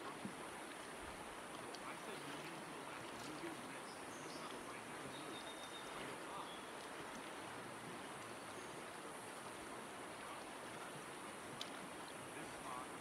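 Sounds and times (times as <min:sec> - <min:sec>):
river flowing over stones: 0:00.0 - 0:13.0.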